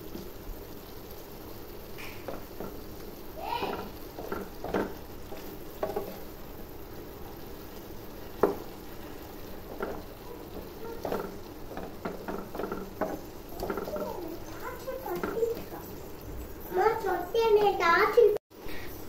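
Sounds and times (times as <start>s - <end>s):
pan sizzling: 0.0s - 19.0s
spatula scraping and knocking pan: 2.0s - 7.0s, 7.6s - 16.2s.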